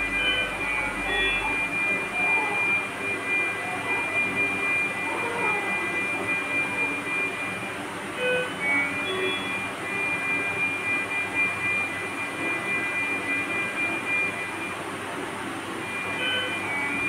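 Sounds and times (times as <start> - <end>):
alarm beeps: 0.0 - 17.0
constant machine hum: 0.0 - 17.0
steady high-pitched monitor tone: 0.0 - 17.0.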